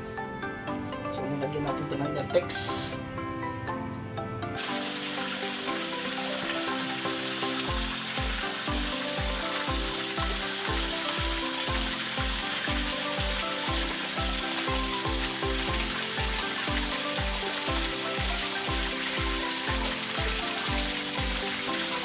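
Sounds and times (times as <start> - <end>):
background music with beat: 0.0 - 22.0
water splashing into reservoir: 4.6 - 22.0.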